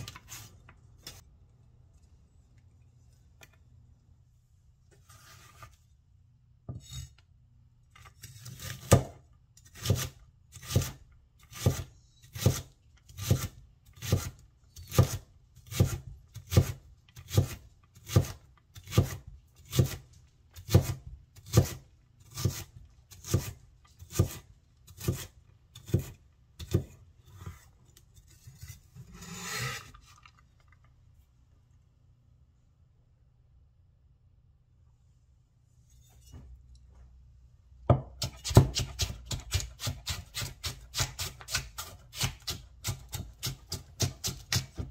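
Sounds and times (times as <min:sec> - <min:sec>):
blade scraping across board: 0:27.3 - 0:30.1.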